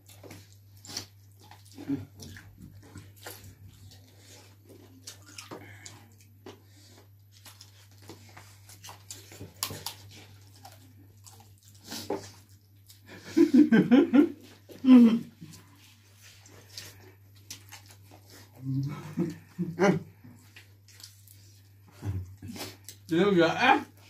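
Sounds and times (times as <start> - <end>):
people chewing and lip smacking: 0.0 - 23.1.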